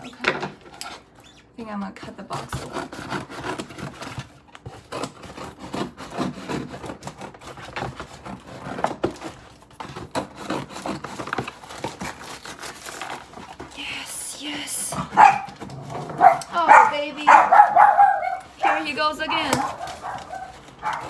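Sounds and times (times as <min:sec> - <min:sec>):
scissors cutting cardboard: 0:02.2 - 0:13.8, 0:17.6 - 0:21.0
cardboard flaps rustling: 0:18.6 - 0:21.0.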